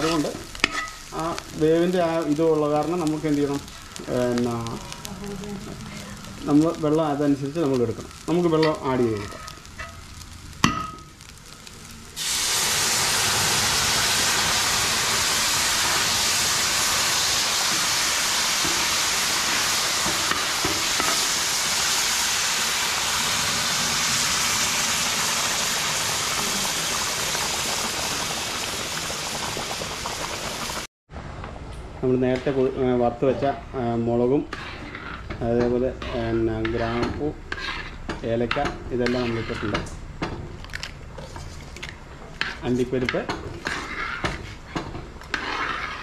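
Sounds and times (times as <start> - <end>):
water sizzling in hot pot: 0.0 - 30.9, 42.4 - 46.0.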